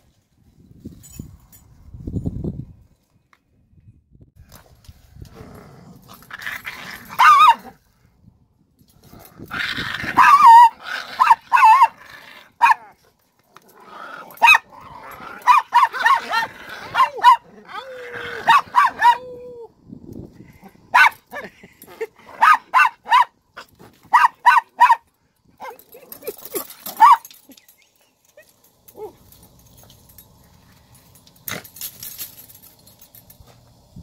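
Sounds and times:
small dogs barking and yapping: 6.2s - 7.8s, 9.4s - 13.1s, 13.8s - 19.7s, 20.6s - 29.6s.

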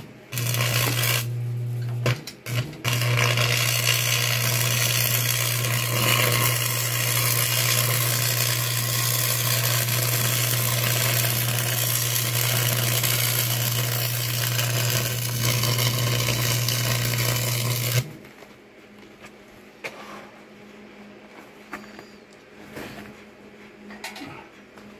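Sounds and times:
welder arc crackling: 0.0s - 18.4s
steady low hum: 0.0s - 24.9s.

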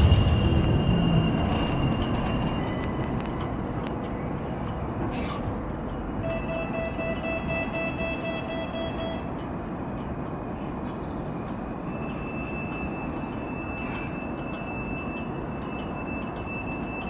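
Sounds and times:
pulsing beep: 0.0s - 3.2s, 6.2s - 9.3s
high whine: 0.0s - 9.4s
tram equipment humming: 0.0s - 17.0s.

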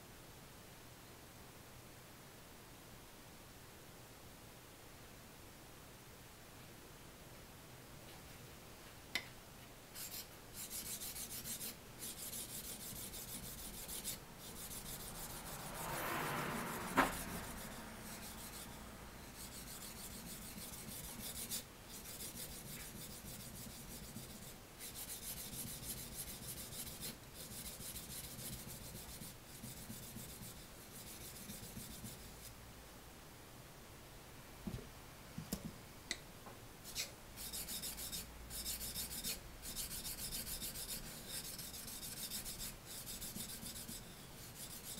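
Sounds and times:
knife scraping on whetstone: 36.9s - 44.9s.

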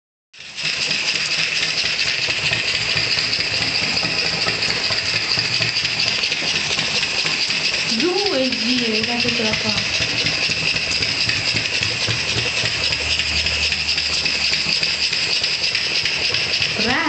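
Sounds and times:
model steam locomotive hissing: 0.4s - 17.0s.

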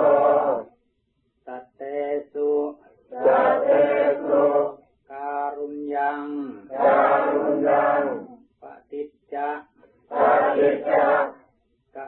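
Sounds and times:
voices chanting in unison: 0.0s - 0.7s, 3.1s - 4.8s, 6.0s - 8.4s, 10.1s - 11.4s.

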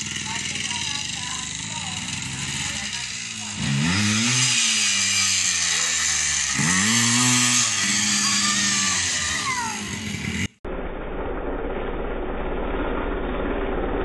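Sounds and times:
dirt bike engine revving: 0.0s - 10.6s.

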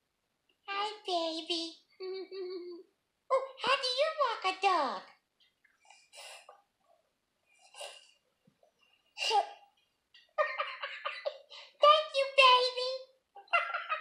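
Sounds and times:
high-pitched laughter: 9.2s - 9.6s, 10.3s - 11.8s, 13.4s - 14.0s.

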